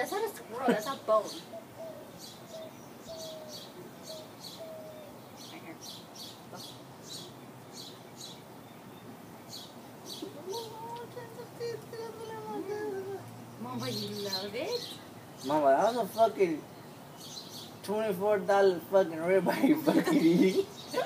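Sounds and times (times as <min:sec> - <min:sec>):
birds chirping: 0:00.0 - 0:21.0
low cooing: 0:01.5 - 0:05.8, 0:10.2 - 0:14.2.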